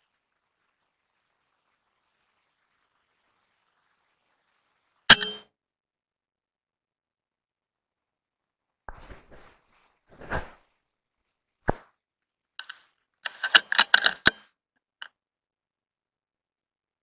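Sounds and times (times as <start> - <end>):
ringing metallic clicks and clinks: 5.1 - 5.4
soft rustles: 8.9 - 11.5.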